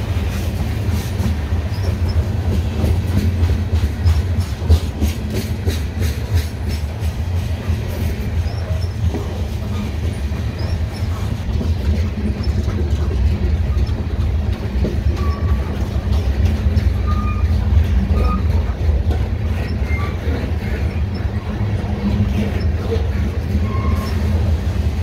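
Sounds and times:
train wheels rumbling on rails: 0.0 - 25.0
faint high wheel squeals: 8.3 - 11.4, 15.0 - 18.7, 19.5 - 21.6, 22.4 - 24.4.

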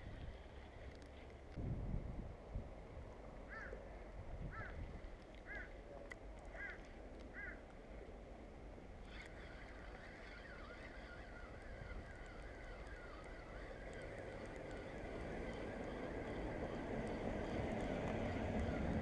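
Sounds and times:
low wind: 0.0 - 19.0
water noise: 4.8 - 19.0
bird calling: 5.4 - 5.8, 9.1 - 17.8.

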